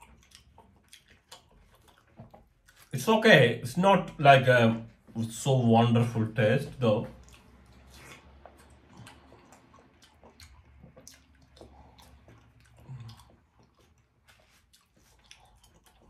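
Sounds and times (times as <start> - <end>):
chewing crisp pear: 0.0 - 3.2, 6.6 - 16.0.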